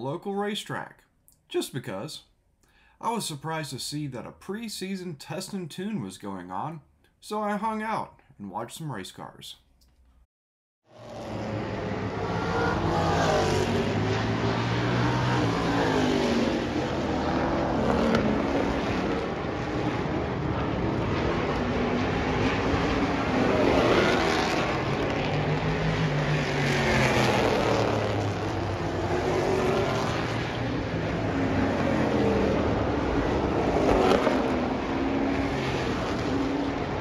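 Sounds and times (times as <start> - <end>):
race car engines passing: 10.9 - 37.0.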